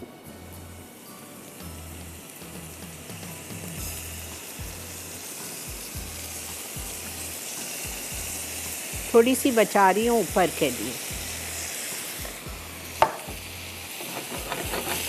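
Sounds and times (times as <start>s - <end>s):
chicken sizzling in grill pan: 0.0s - 15.0s
background music with pulsing beat: 1.8s - 7.2s, 7.8s - 9.2s.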